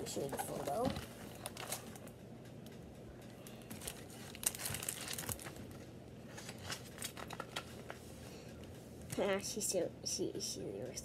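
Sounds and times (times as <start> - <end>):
paper pages rustling: 3.7 - 8.0.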